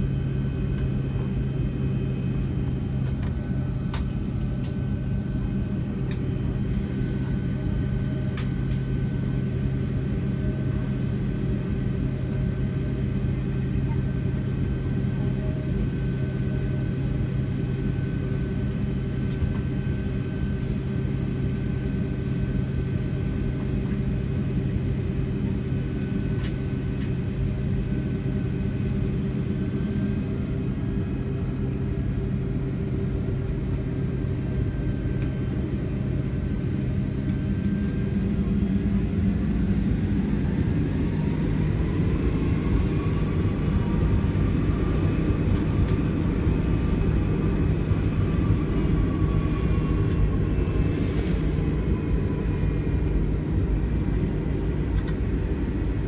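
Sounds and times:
jet engine hum and rumble: 0.0 - 56.0
engine whine rising in pitch: 39.2 - 56.0.

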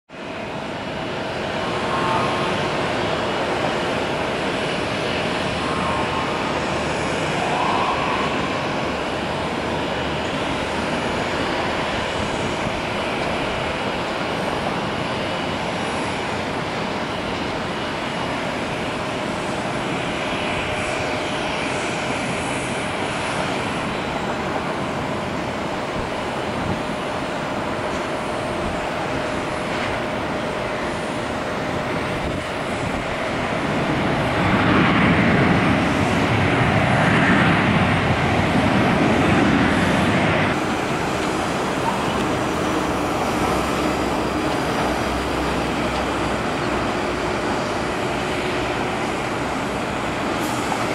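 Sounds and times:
jet engines rushing: 0.1 - 50.9.

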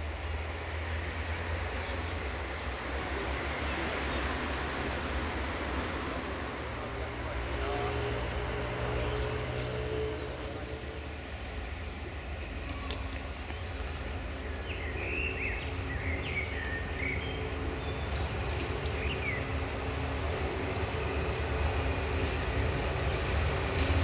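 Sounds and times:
diesel train engine rumbling: 0.0 - 24.0
bird chirps: 14.4 - 19.9.

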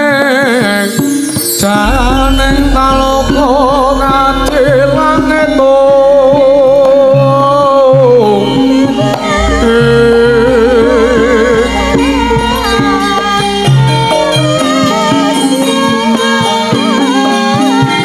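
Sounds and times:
gamelan music: 0.0 - 18.0
low drum strokes: 1.6 - 7.6, 9.2 - 14.9.

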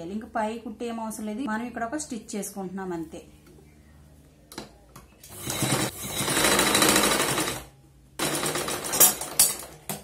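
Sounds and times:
sewing machine stitching: 5.3 - 9.7.

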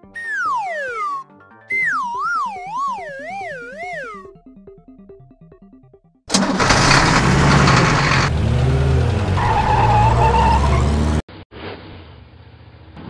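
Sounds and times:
cartoon monster truck engine revving: 6.3 - 11.2.

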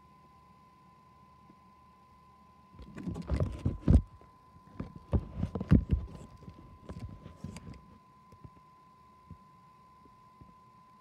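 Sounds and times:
faint high whine: 0.0 - 11.0
phone handling thumps and rubbing: 2.8 - 7.8.

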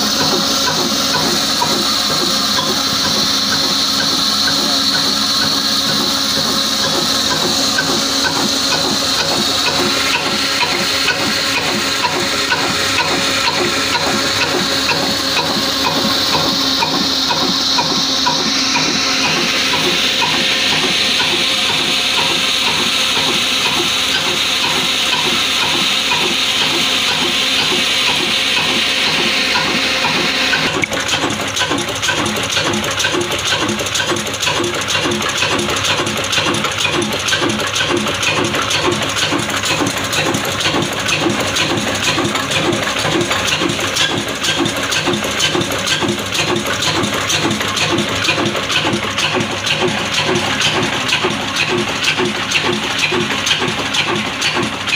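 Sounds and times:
diesel engine steady beat: 0.0 - 54.9.

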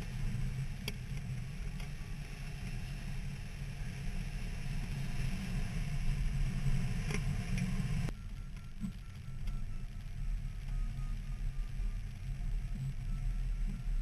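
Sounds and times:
faint repeating high beep: 8.1 - 14.0.

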